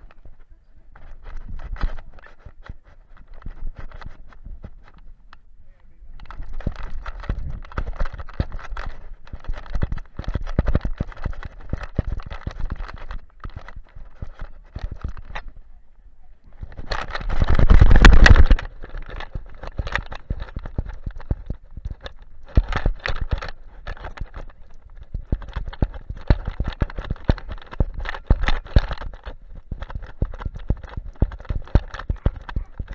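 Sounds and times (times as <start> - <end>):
camera knocking and rattling: 0.0 - 5.4, 6.1 - 15.6, 16.5 - 32.9
dog footsteps thumping: 6.2 - 15.5, 16.6 - 32.9.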